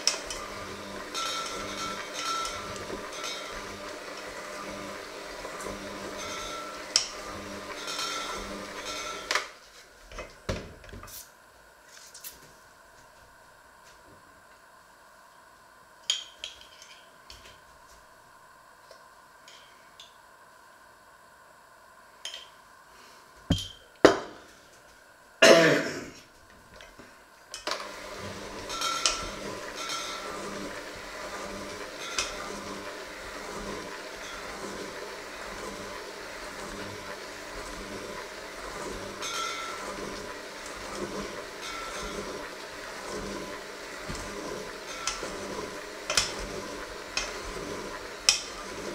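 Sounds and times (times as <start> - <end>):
electric hand mixer running: 0.0 - 9.6, 27.7 - 48.9
mixer knocking against bowl: 28.2 - 33.0, 36.6 - 48.9.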